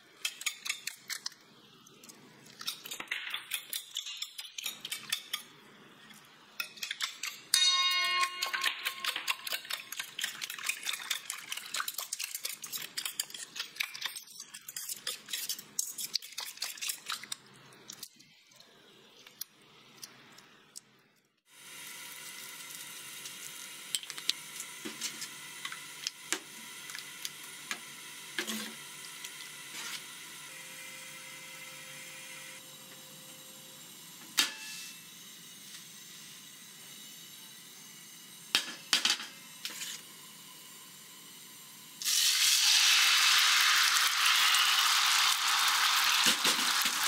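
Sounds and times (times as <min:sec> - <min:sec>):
fork whisking eggs in metal bowl: 0:02.6 - 0:18.1.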